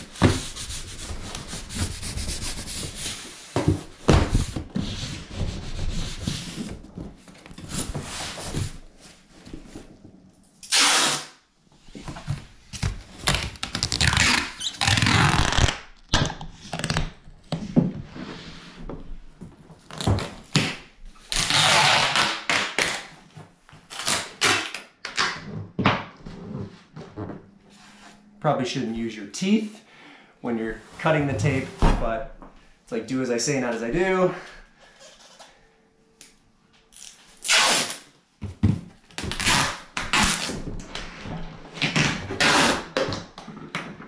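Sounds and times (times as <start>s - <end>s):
hands rubbing cardboard: 0.0s - 6.9s
packing tape pulled off roll: 10.6s - 11.4s, 13.2s - 17.2s, 19.9s - 23.2s, 23.8s - 25.4s, 36.9s - 38.1s, 39.1s - 40.6s, 41.8s - 43.3s.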